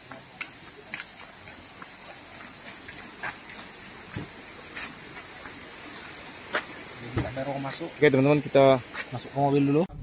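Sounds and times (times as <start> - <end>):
sandal footsteps on concrete: 0.0 - 6.8
steady background hiss: 0.0 - 9.9.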